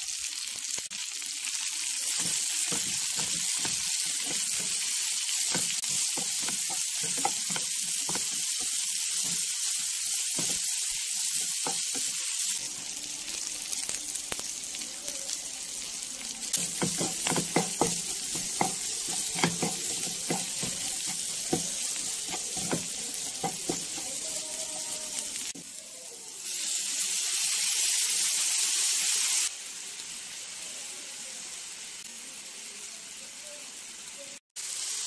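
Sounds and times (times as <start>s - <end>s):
vegetables sizzling in a frying pan: 0.0s - 35.0s
wooden spatula scraping a pan: 2.1s - 10.6s, 16.6s - 24.2s.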